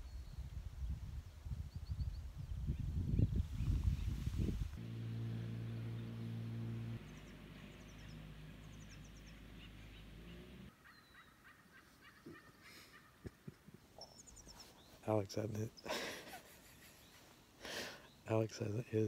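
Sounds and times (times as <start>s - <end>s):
outboard motor running: 4.8s - 10.7s
faint high bird chirps: 7.0s - 13.1s.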